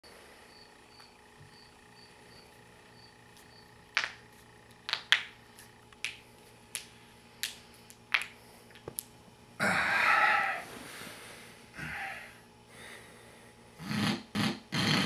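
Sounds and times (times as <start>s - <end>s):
knuckles cracking: 3.4s - 4.2s, 4.9s - 9.1s
man snorting: 9.6s - 15.0s.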